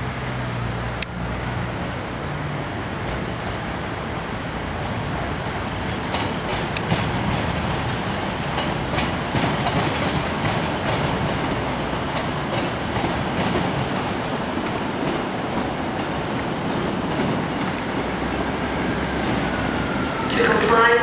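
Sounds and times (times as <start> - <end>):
train rolling rumble: 0.0 - 21.0
train wheels clacking over joints: 5.6 - 18.4.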